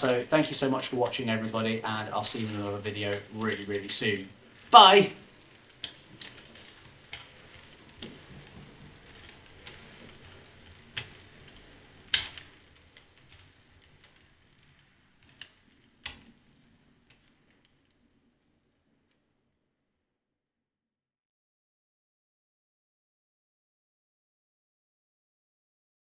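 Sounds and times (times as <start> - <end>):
wheels clicking over rail joints: 0.0 - 19.3.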